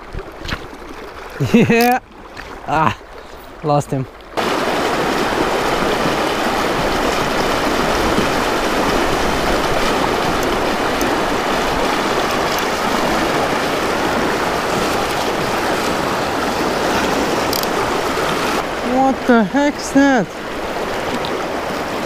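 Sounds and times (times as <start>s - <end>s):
river water rushing over stones: 0.0s - 22.0s.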